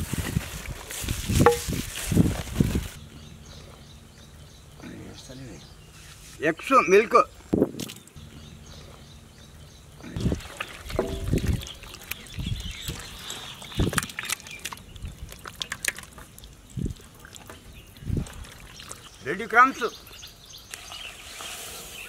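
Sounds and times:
hands squelching in wet batter: 0:10.1 - 0:19.2.

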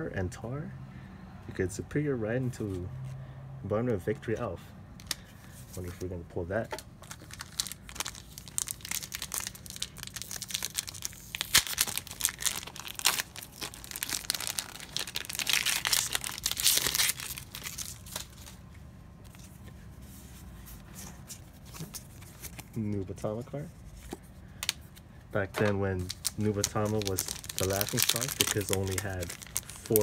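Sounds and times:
wrapper torn and crinkled: 0:07.0 - 0:18.6, 0:26.0 - 0:30.0.

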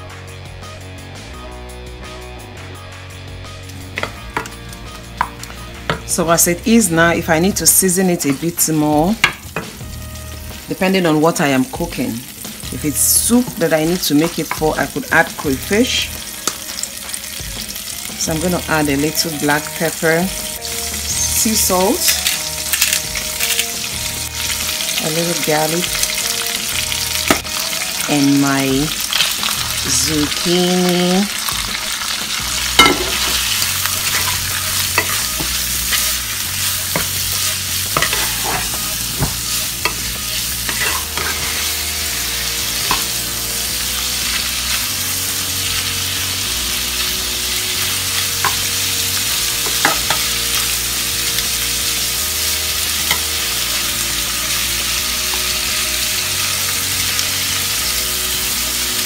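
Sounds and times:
noodles sizzling in oil: 0:03.6 - 0:59.0
utensil scraping frying pan: 0:31.5 - 0:44.8.

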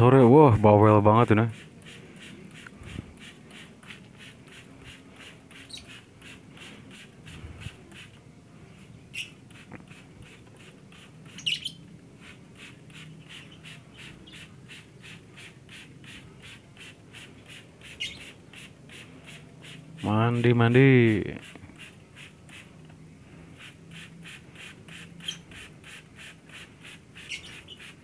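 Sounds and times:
spray bottle squirts: 0:01.5 - 0:08.2, 0:09.1 - 0:20.0, 0:21.4 - 0:22.9, 0:23.6 - 0:28.0
lovebird squawking: 0:05.5 - 0:06.0, 0:11.2 - 0:11.8, 0:17.9 - 0:18.3, 0:25.2 - 0:25.6, 0:27.2 - 0:28.0.

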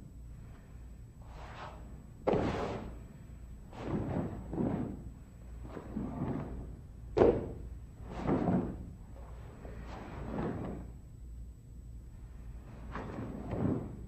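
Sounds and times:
swishes of movement: 0:01.2 - 0:06.8, 0:07.4 - 0:10.9.

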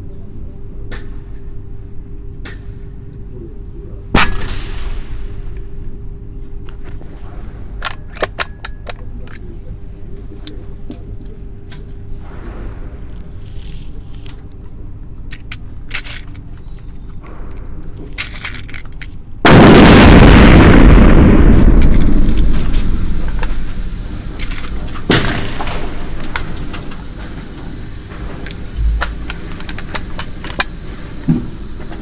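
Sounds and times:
loud high-pressure air hiss: 0:22.2 - 0:32.0.

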